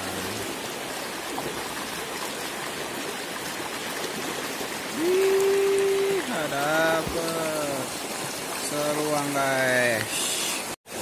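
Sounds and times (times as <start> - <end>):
stream splashing over stones: 0.0 - 11.0
man exclaiming: 5.0 - 7.8.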